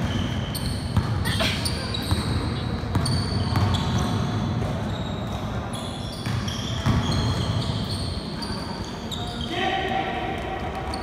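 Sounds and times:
sneakers squeaking: 0:00.0 - 0:09.7, 0:10.6 - 0:11.0
basketball bouncing: 0:00.9 - 0:01.2, 0:02.0 - 0:04.8, 0:06.2 - 0:07.2.

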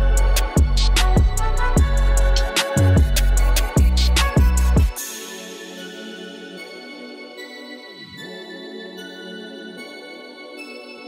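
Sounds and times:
deep kick drum: 0:00.0 - 0:02.4, 0:03.0 - 0:05.0
hi-hat ticks: 0:00.0 - 0:05.0
sustained bass line: 0:00.0 - 0:05.0.

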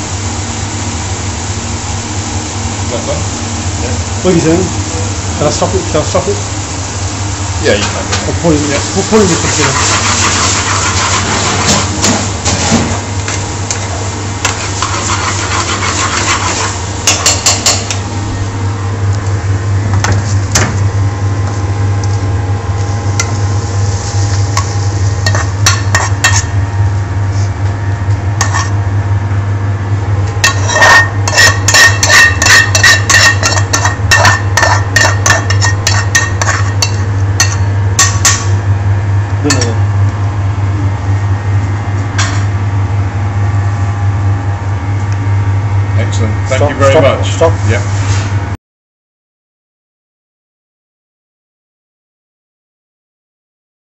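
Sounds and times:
metal spoon scraping a pan: 0:09.4 - 0:11.8, 0:14.5 - 0:17.8, 0:25.2 - 0:26.5, 0:28.4 - 0:28.8, 0:30.4 - 0:38.5.

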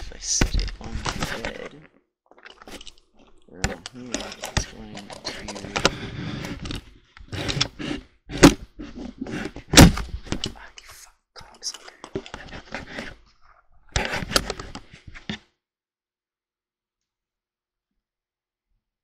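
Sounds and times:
camera handling knocks and scrapes: 0:04.2 - 0:10.6, 0:13.9 - 0:15.4.

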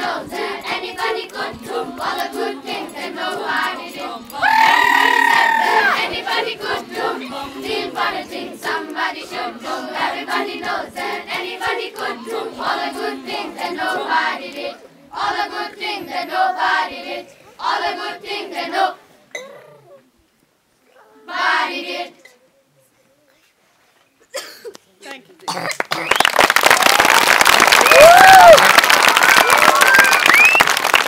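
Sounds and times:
children's choir singing: 0:00.0 - 0:19.0, 0:21.2 - 0:22.2.

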